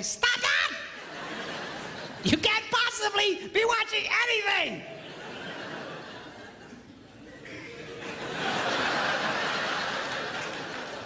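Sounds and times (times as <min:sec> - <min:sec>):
audience laughing: 0:00.8 - 0:02.3, 0:04.9 - 0:11.0.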